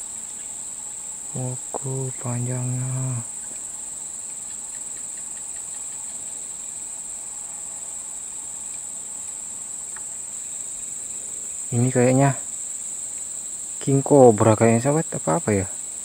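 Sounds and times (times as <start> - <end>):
insects buzzing: 0.0 - 16.0
faint ticks: 3.4 - 6.6, 8.6 - 8.9, 9.8 - 10.2.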